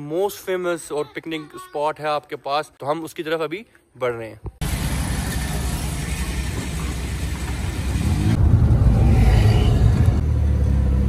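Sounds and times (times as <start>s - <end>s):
engine revving: 4.6s - 11.0s
traffic rumble: 4.6s - 11.0s.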